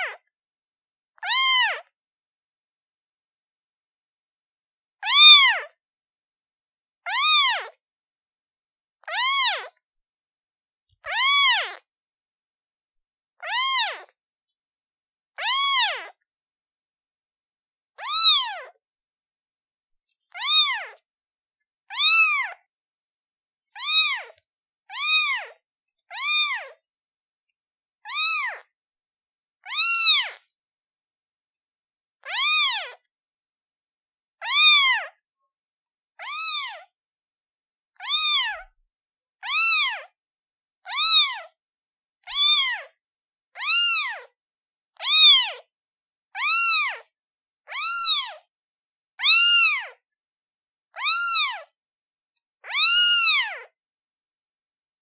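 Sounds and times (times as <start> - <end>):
kitten meowing: 1.2 - 1.9, 5.0 - 5.7, 7.1 - 7.8, 9.1 - 9.7, 11.0 - 11.8, 13.4 - 14.1, 15.4 - 16.2, 18.0 - 18.8, 20.3 - 21.0, 21.9 - 22.6, 23.8 - 26.8, 28.1 - 28.7, 29.6 - 30.4, 32.2 - 33.0, 34.4 - 35.2, 36.2 - 36.9, 38.0 - 38.7, 39.4 - 40.1, 40.9 - 41.5, 42.3 - 42.9, 43.6 - 44.4, 45.0 - 45.6, 46.4 - 47.1, 47.7 - 48.4, 49.2 - 50.0, 50.9 - 51.7, 52.6 - 53.7.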